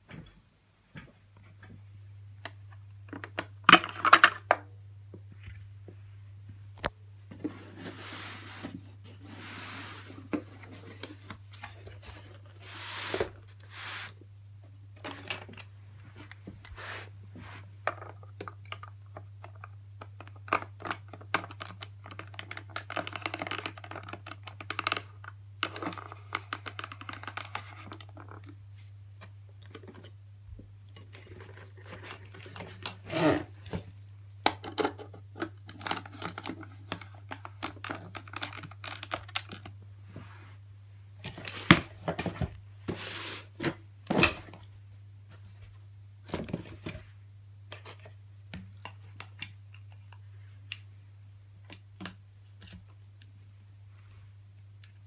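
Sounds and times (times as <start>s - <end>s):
rustling and scraping: 7.3s - 14.2s, 41.2s - 44.6s.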